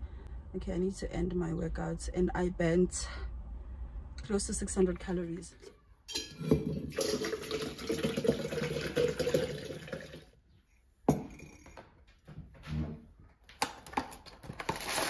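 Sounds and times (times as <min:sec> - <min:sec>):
liquid pouring into glass: 0:06.2 - 0:10.4
mug knocking on counter: 0:11.1 - 0:11.6.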